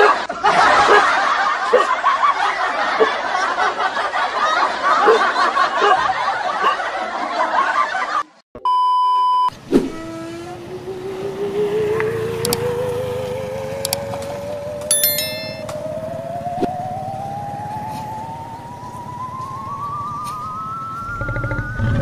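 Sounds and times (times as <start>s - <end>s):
laughter: 0.0s - 8.4s
wavering rising tone: 10.2s - 22.0s
short chime: 14.9s - 15.7s.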